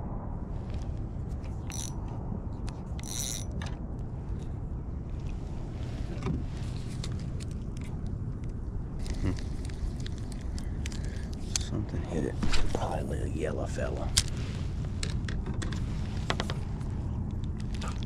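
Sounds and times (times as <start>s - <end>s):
low rumble: 0.0s - 18.0s
fishing reel clicks: 1.7s - 2.0s, 3.0s - 3.5s.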